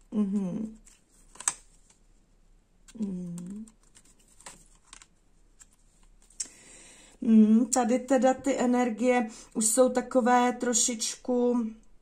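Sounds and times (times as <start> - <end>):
woman humming: 0.0 - 0.8, 2.9 - 3.7.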